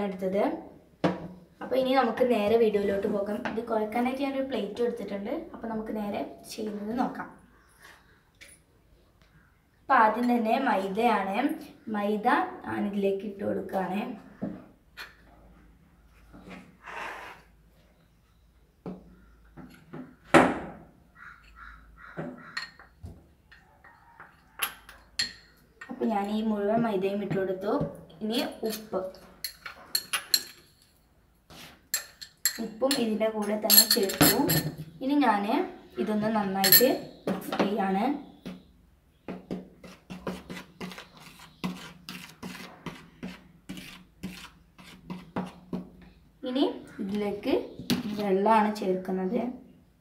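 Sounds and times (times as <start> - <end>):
metal spoon clinking on glass bowl: 32.0 - 33.1, 33.7 - 34.7, 36.6 - 37.1.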